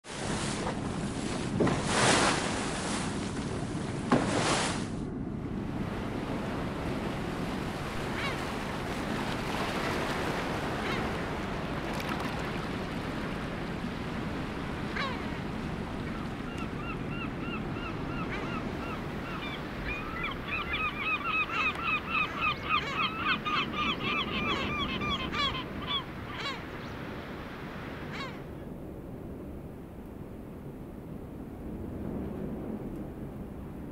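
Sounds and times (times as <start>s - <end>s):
waves on open sea: 0.0s - 33.9s
wind: 0.0s - 33.9s
seabirds calling: 8.0s - 8.9s, 10.2s - 13.4s, 14.4s - 28.5s.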